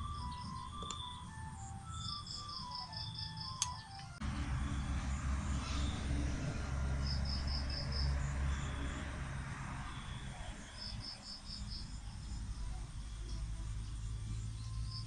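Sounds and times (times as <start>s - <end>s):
cricket chirping: 0.0s - 4.0s, 4.6s - 15.0s
low rumble: 4.2s - 14.7s.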